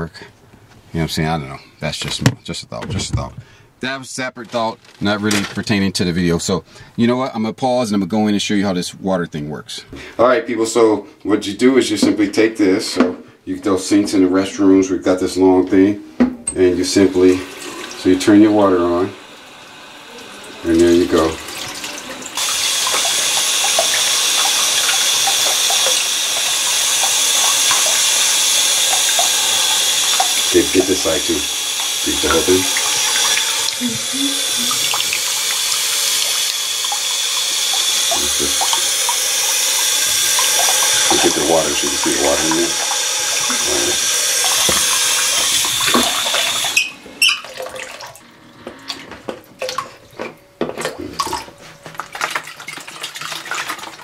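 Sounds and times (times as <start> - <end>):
faucet water rushing into jug: 16.5 - 50.0, 50.8 - 54.0
water gurgling in jug: 16.8 - 48.3, 50.8 - 54.0.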